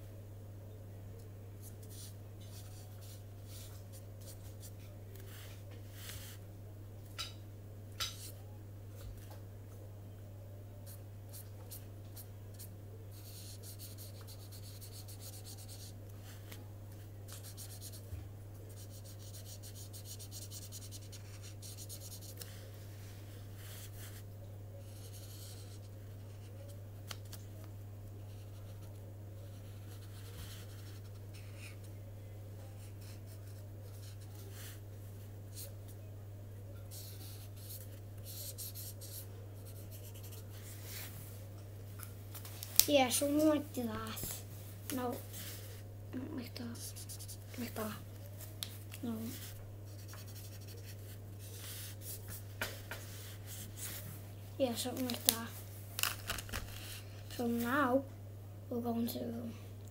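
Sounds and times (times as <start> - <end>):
low electrical hum: 0.0 - 59.9
pen scratching on paper: 18.8 - 22.6, 24.9 - 26.6, 49.3 - 52.2.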